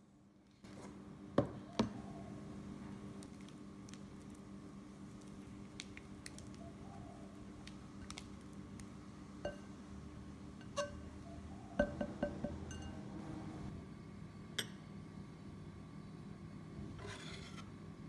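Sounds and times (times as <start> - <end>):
spatula clinking glass bowl: 11.8 - 13.0
spatula scraping glass bowl: 17.0 - 17.7.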